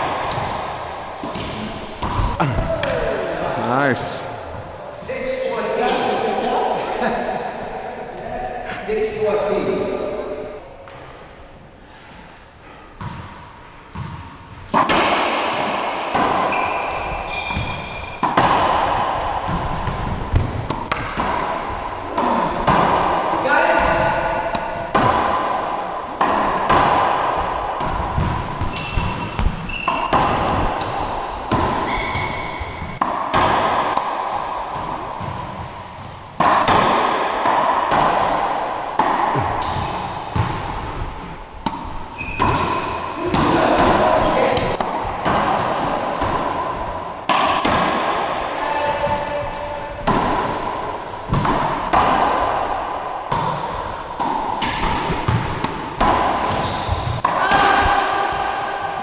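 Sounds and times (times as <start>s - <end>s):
racquetball hits echoing: 0.0s - 6.6s, 13.0s - 59.0s
short high squeaks: 16.5s - 18.2s, 31.9s - 32.6s.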